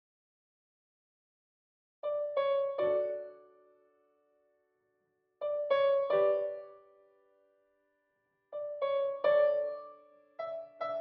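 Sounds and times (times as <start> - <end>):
slow piano notes: 2.1 - 3.6, 5.4 - 6.8, 8.6 - 11.0.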